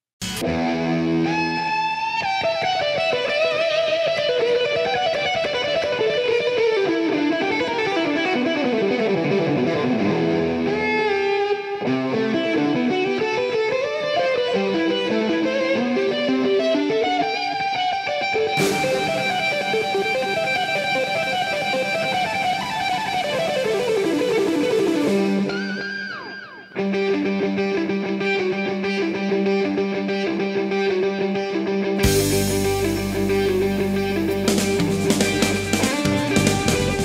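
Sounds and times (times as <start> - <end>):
guitar background music: 0.2 - 37.0.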